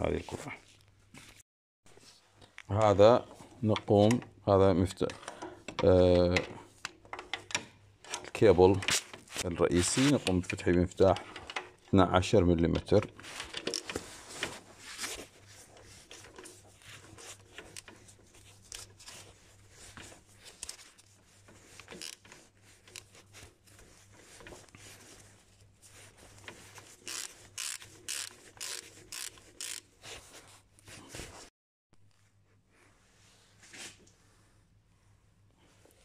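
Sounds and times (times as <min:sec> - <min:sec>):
ratchet wrench clicking: 0:27.1 - 0:29.8.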